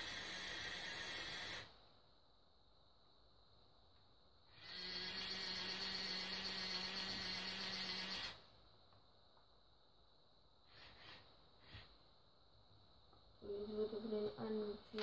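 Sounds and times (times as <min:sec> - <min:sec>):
small electric motor humming: 0:00.0 - 0:01.7, 0:04.5 - 0:08.4.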